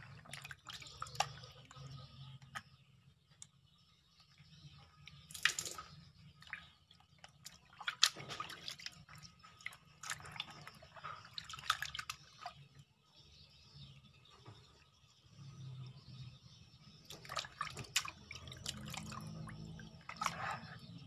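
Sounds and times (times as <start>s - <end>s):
water splashing in plastic basin: 0.0s - 2.6s, 5.2s - 12.6s, 17.0s - 20.7s
water dripping: 0.0s - 2.7s, 4.9s - 12.8s, 16.9s - 20.6s.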